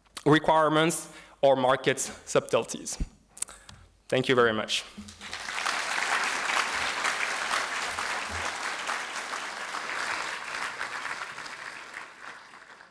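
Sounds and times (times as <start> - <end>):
audience applauding: 5.1 - 12.9.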